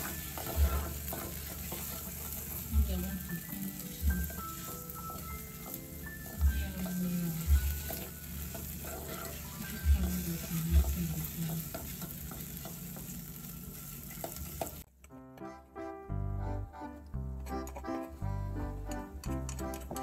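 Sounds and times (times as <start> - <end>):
onions sizzling in oil: 0.0 - 14.9
music: 0.0 - 20.0.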